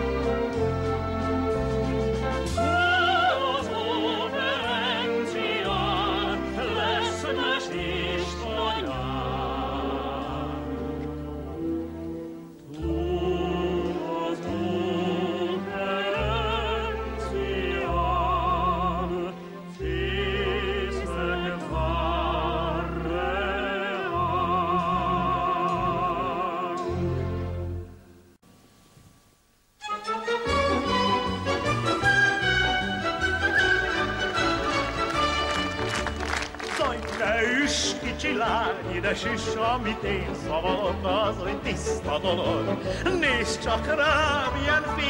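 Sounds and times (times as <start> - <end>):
orchestral accompaniment: 0.0 - 28.1, 29.8 - 45.0
man and woman singing operetta: 2.5 - 11.2, 12.6 - 27.3, 36.7 - 45.0.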